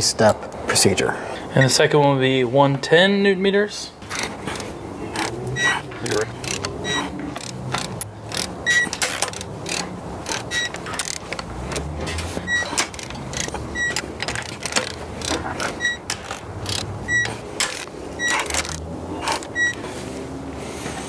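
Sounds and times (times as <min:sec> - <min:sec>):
torque wrench ratcheting and clicking: 0:04.1 - 0:11.9, 0:12.5 - 0:19.8.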